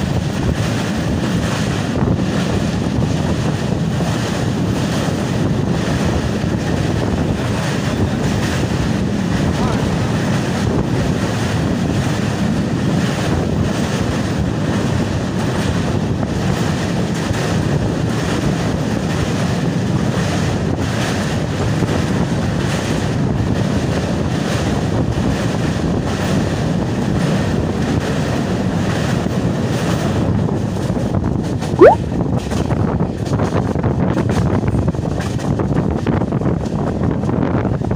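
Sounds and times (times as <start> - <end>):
train running over bridge: 0.0 - 37.9
wind buffeting microphone: 0.0 - 37.9
brief loud sound: 31.8 - 32.0.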